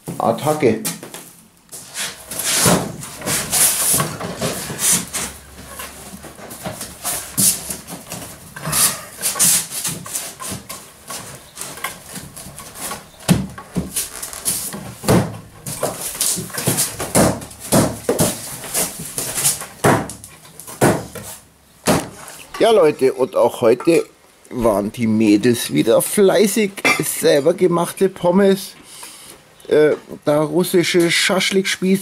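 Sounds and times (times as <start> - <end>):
wooden floorboards knocking and scraping: 2.6 - 22.3.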